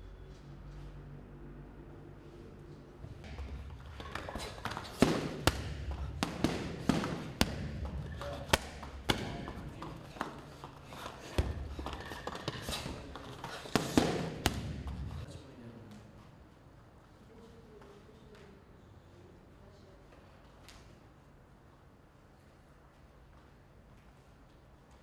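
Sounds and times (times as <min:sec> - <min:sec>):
gloves thudding on punching bag: 0:03.2 - 0:09.6, 0:13.7 - 0:15.1.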